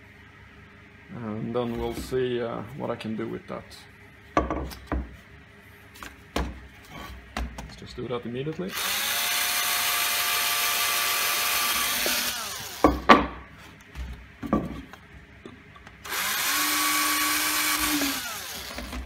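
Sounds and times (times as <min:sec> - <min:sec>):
cordless drill boring: 0:08.7 - 0:13.0, 0:16.0 - 0:19.0.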